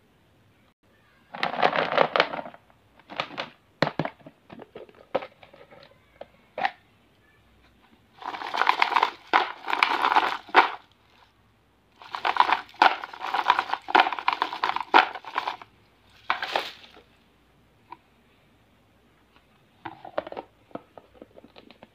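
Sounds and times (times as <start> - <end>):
wrapped candies rattling in plastic box: 1.3 - 3.6, 8.2 - 10.9, 12.0 - 17.1.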